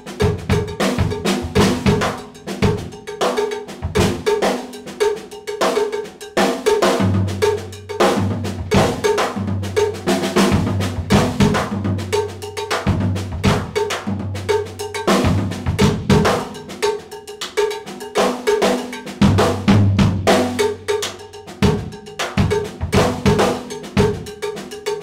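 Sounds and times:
drum kit groove: 0.0s - 25.0s.

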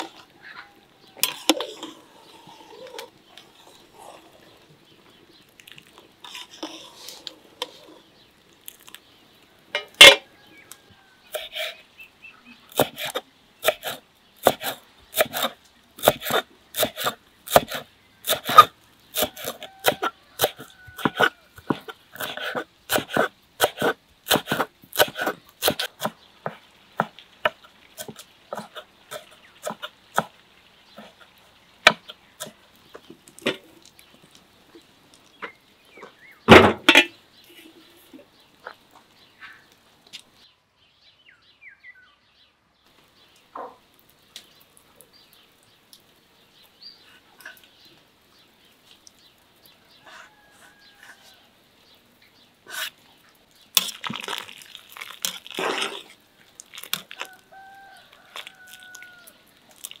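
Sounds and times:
chicken calling: 0.0s - 1.2s, 56.9s - 59.6s
skimmer scraping steel pot: 1.2s - 4.6s, 6.2s - 8.1s
soup sloshing: 53.6s - 60.0s.

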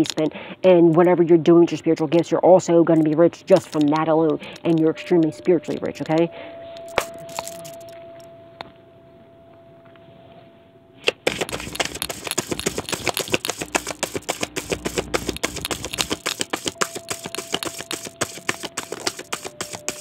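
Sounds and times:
cards being shuffled by hand: 2.9s - 6.0s, 6.9s - 7.9s, 11.0s - 20.0s.

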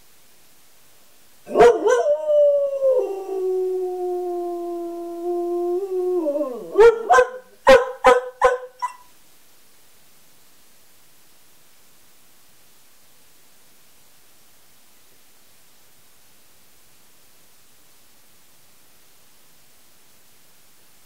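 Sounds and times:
dog yipping: 1.5s - 2.1s, 6.8s - 9.1s
dog howling: 1.5s - 8.9s.

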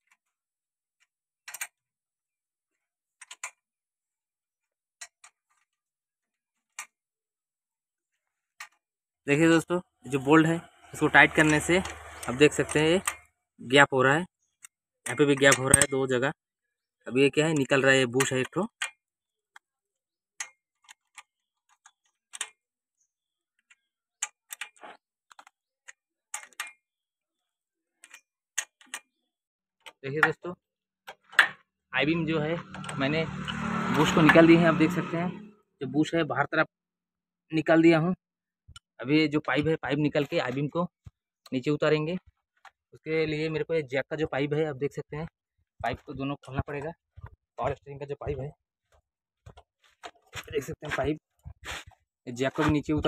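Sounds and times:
ratchet wrench clicking: 11.0s - 13.2s.

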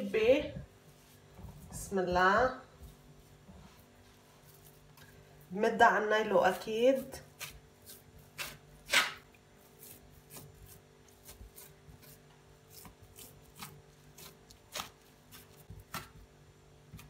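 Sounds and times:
hands patting dough on plastic: 6.6s - 17.0s.

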